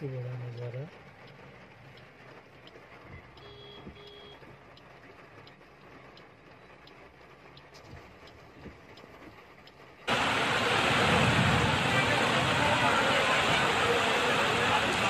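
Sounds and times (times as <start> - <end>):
faint ticks: 0.1 - 9.9
short electronic beeps: 3.1 - 4.4.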